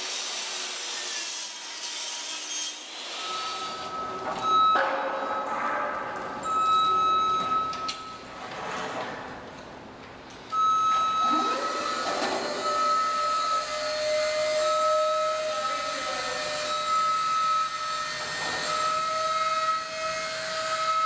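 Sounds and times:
power tool high whine: 0.0 - 4.0, 11.3 - 21.0.

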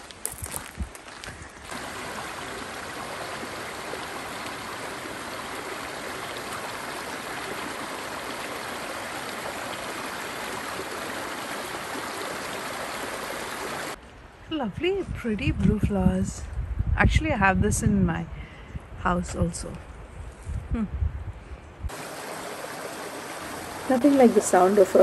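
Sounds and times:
creek babbling over rocks: 1.6 - 14.0, 21.9 - 25.0.

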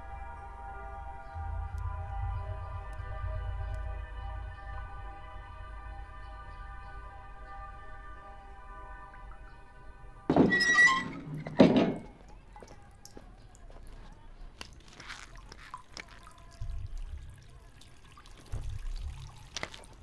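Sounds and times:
soundtrack music held notes: 0.0 - 10.6
loud thuds: 10.3 - 12.2
faint knocks and handling sounds: 10.3 - 16.8.

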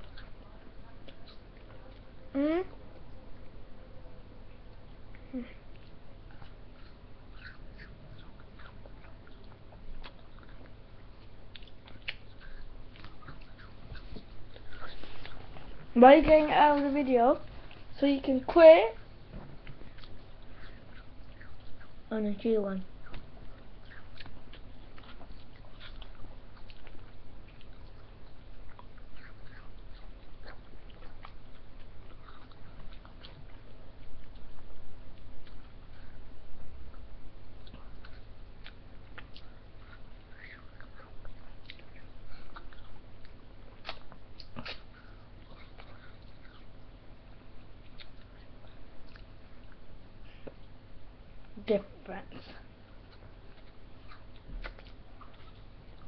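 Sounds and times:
steady low hum: 0.0 - 56.0
eating mouth sounds: 37.6 - 46.8.

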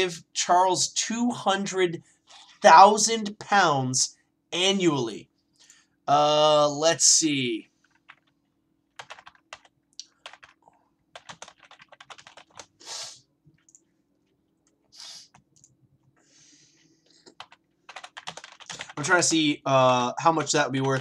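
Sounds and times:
short hisses: 12.8 - 13.2, 14.9 - 15.3.

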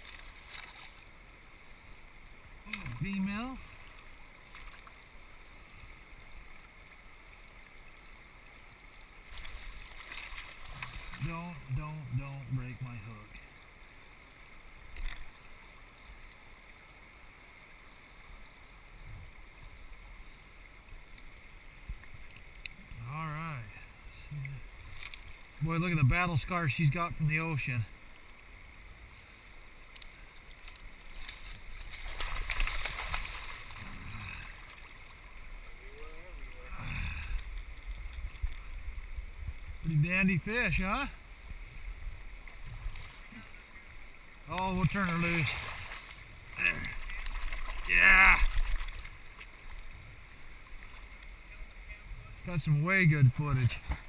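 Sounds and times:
water running over gravel: 0.0 - 1.2, 2.6 - 5.3, 8.9 - 13.3, 29.8 - 39.0, 42.4 - 51.6
river water over gravel: 0.0 - 54.0
light splashing and clicking: 2.2 - 3.2, 3.9 - 5.0, 14.9 - 17.0, 24.9 - 25.4, 29.9 - 33.8, 46.8 - 49.9
fish splashing in water: 9.2 - 11.3, 30.6 - 35.2, 45.1 - 49.8.

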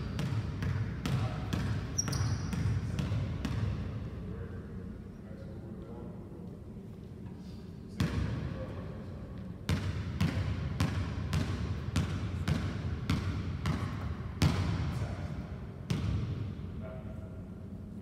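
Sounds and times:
basketball bouncing on gym floor: 0.0 - 3.9, 8.0 - 8.5, 9.6 - 15.1, 15.9 - 16.5.

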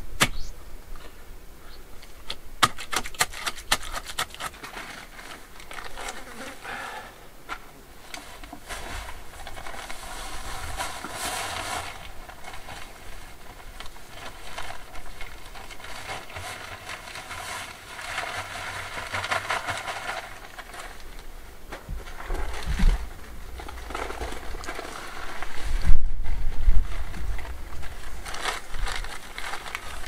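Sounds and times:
hand tools scraping ground: 2.6 - 30.0.

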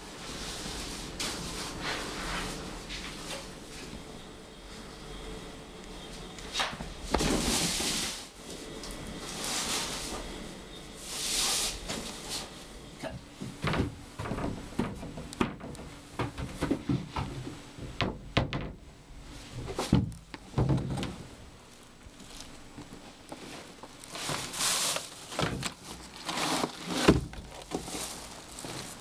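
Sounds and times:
cupboard doors knocking and rattling: 13.4 - 18.8, 19.9 - 21.2.

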